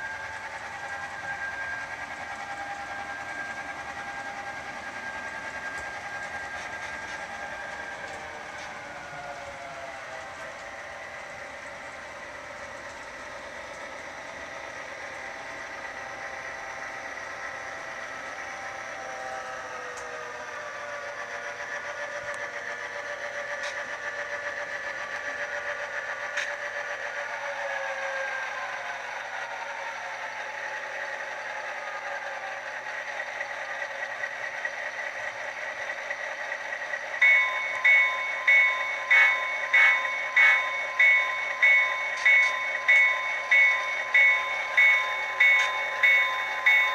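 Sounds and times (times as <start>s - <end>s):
bell ringing: 37.2s - 46.9s.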